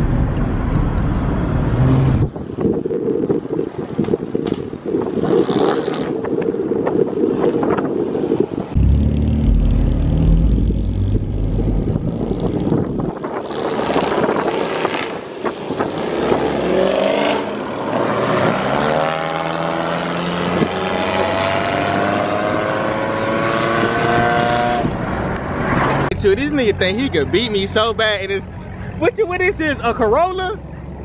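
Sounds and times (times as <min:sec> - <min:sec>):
car engine accelerating: 0:08.8 - 0:14.0.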